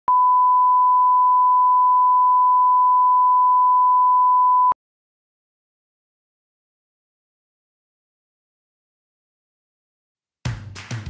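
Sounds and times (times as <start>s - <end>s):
steady sine test tone: 0.1s - 4.8s.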